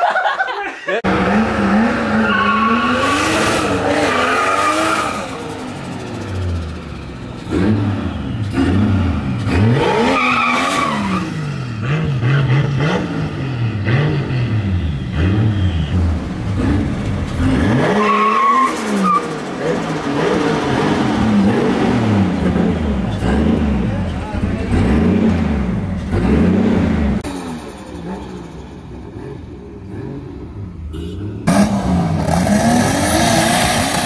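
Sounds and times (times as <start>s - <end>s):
car engine revving: 1.0s - 34.0s
tires squealing: 1.1s - 6.7s, 7.4s - 12.6s, 14.8s - 26.9s.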